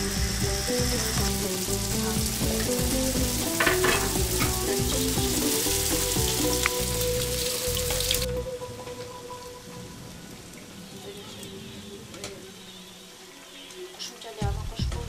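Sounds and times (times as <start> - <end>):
dough sizzling in hot oil: 0.0 - 8.3.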